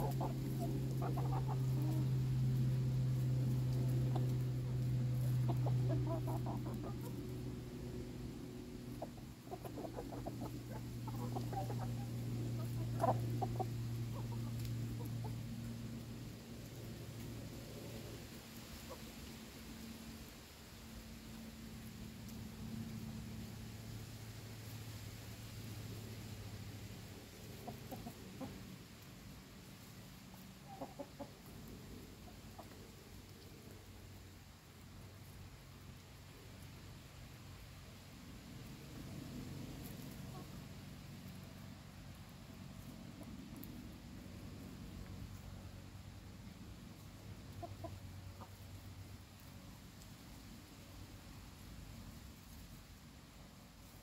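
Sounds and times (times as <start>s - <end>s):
chickens clucking: 0.0s - 20.3s, 26.8s - 37.0s, 38.6s - 50.2s
steady low hum: 0.0s - 30.7s.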